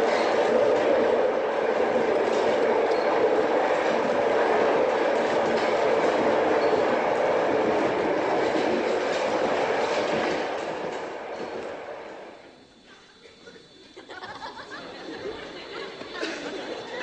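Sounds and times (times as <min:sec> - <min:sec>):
airliner engine drone: 0:10.5 - 0:17.0.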